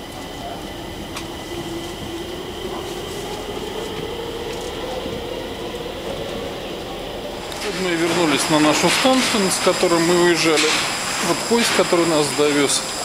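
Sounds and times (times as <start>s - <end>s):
train drive whine: 0.0s - 13.0s
train wheel and track rumble: 0.0s - 13.0s.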